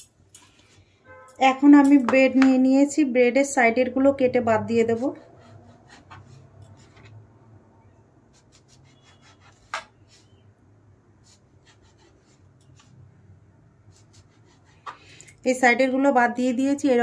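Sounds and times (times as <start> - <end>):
knife scraping bread: 4.9 - 7.2, 8.3 - 10.4, 11.2 - 12.9, 13.9 - 15.0.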